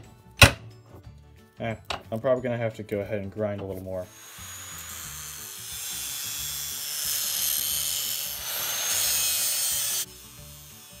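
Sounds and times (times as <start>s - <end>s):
angle grinder grinding steel: 3.6s - 11.0s.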